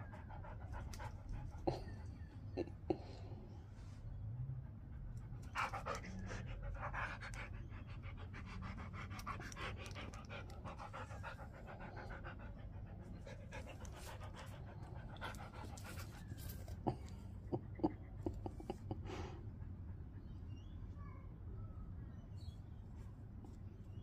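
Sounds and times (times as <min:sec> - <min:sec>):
dog panting: 0:00.0 - 0:02.9, 0:04.6 - 0:20.4.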